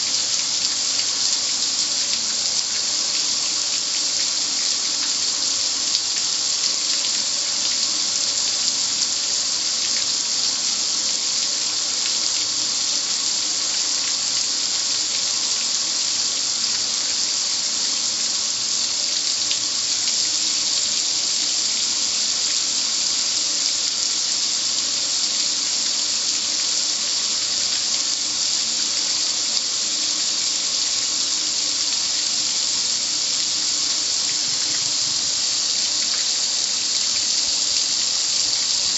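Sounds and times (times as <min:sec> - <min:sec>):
water spray hissing: 0:00.0 - 0:38.9.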